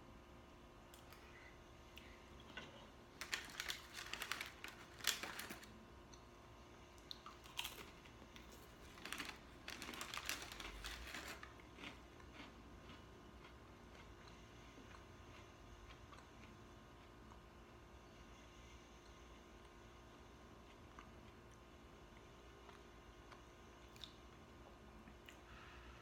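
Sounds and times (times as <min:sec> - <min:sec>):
chewing: 0:07.0 - 0:17.4.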